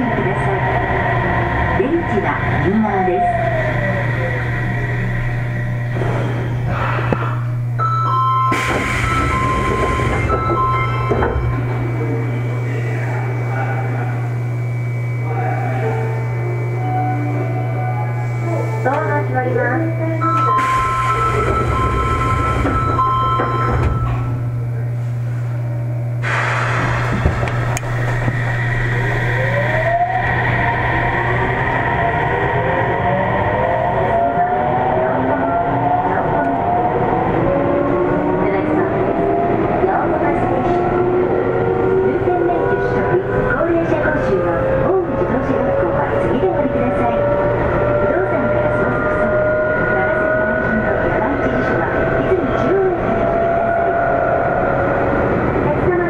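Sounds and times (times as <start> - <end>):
high whining traction tones: 0.0 - 56.0
subway train running hum: 0.0 - 56.0
electronic tones: 20.2 - 24.4.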